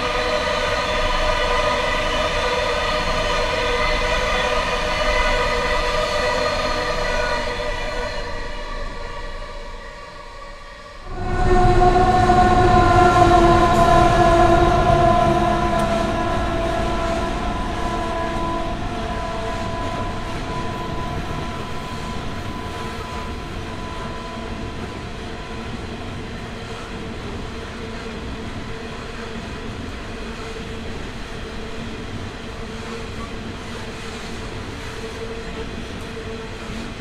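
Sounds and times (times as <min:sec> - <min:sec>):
locomotive horn: 0:00.0 - 0:10.2, 0:10.9 - 0:25.9
train wagons rumbling by: 0:11.0 - 0:37.0.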